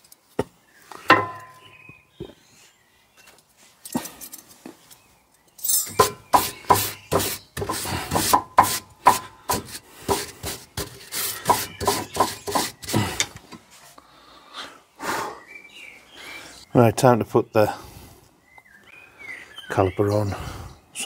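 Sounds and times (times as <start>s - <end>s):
hand brush scraping rusty metal: 5.8s - 13.3s.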